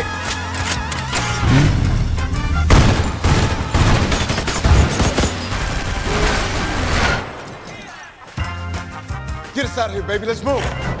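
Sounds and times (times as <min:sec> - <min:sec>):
music: 0:00.0 - 0:11.0
rapid gunfire: 0:02.7 - 0:07.5.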